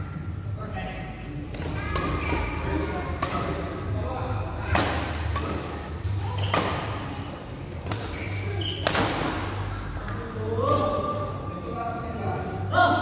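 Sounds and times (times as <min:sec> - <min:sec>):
rackets hitting a shuttlecock: 0:01.5 - 0:03.7, 0:04.6 - 0:07.2, 0:07.8 - 0:10.2.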